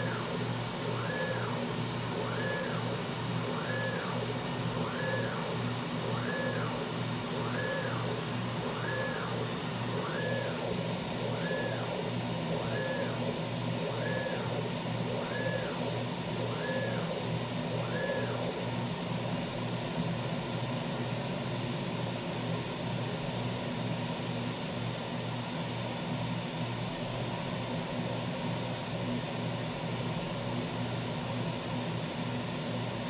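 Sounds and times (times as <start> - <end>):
machine axis drives whining: 0.0 - 19.4
low machine hum: 0.0 - 21.0.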